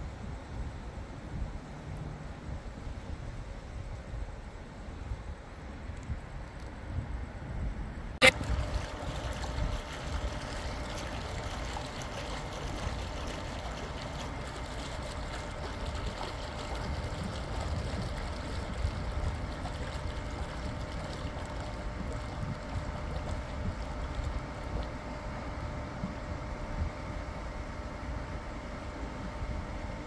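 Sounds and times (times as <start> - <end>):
wind buffeting microphone: 2.4 - 24.8.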